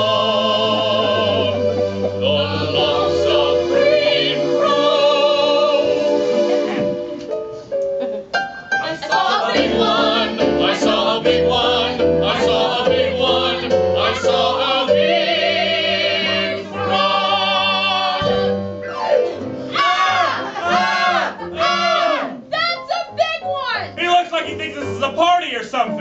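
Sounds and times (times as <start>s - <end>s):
people singing together: 0.0s - 7.2s, 8.8s - 18.8s, 19.6s - 22.4s
sliding vocal sweep: 0.0s - 7.2s
instrumental backing: 0.0s - 26.0s.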